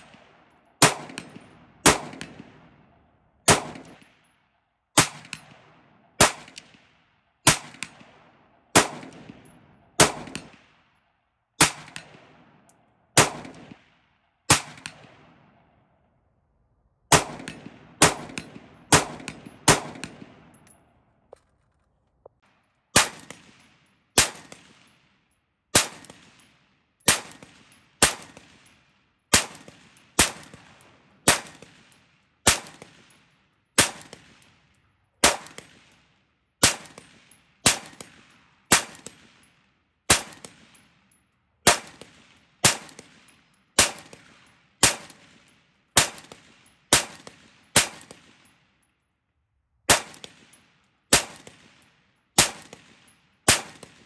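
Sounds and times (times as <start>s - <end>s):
rifle shots: 0.0s - 2.8s, 3.5s - 4.2s, 5.0s - 10.8s, 11.6s - 12.6s, 13.2s - 15.4s, 17.1s - 20.7s, 22.9s - 25.0s, 25.7s - 26.5s, 27.1s - 28.7s, 29.3s - 33.1s, 33.8s - 34.6s, 35.2s - 36.0s, 36.6s - 39.5s, 40.1s - 40.8s, 41.6s - 48.5s, 49.9s - 54.0s.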